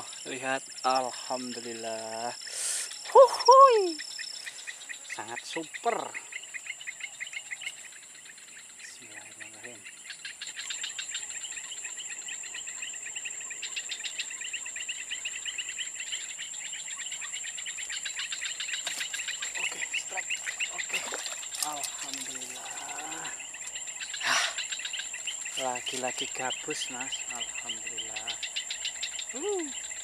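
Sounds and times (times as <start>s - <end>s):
insects chirping rhythmically: 0.0s - 30.0s
insects high-pitched whine: 0.0s - 30.0s.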